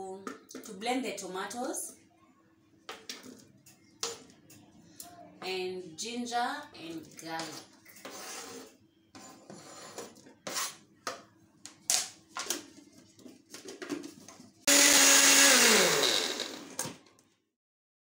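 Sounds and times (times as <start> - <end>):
blender motor running: 14.7 - 16.8.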